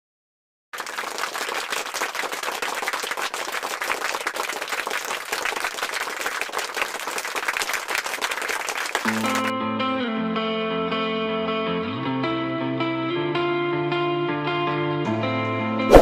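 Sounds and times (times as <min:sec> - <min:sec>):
crowd applauding: 0:00.7 - 0:09.5.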